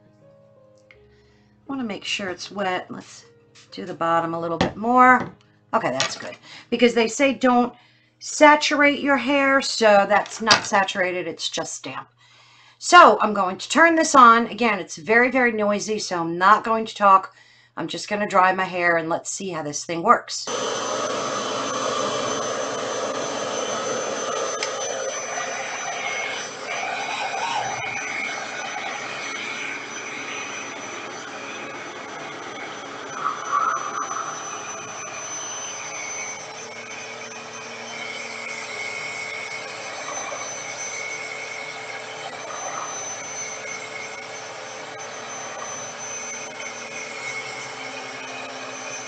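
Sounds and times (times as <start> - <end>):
hair dryer whirring: 20.5 - 49.0.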